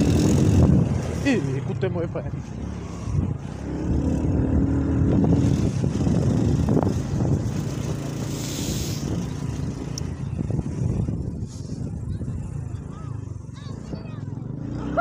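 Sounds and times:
motorcycle engine running: 0.0 - 15.0
brief hiss: 8.3 - 9.1.

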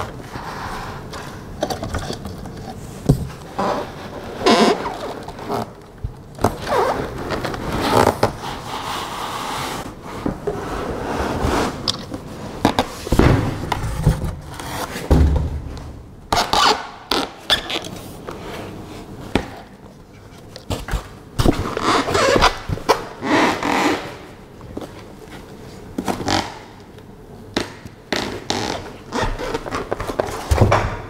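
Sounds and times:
cardboard scraping and rubbing: 6.5 - 15.2.

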